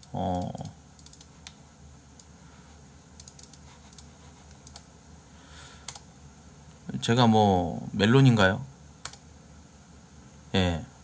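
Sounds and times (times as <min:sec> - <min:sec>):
keyboard typing: 0:00.0 - 0:01.3, 0:03.2 - 0:04.8.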